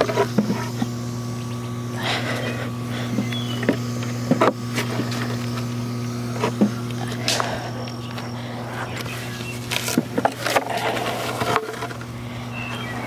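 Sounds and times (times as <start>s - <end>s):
electric pump humming: 0.0s - 13.0s
wooden boards knocking and scraping: 3.1s - 5.3s, 6.4s - 7.5s, 9.6s - 12.0s.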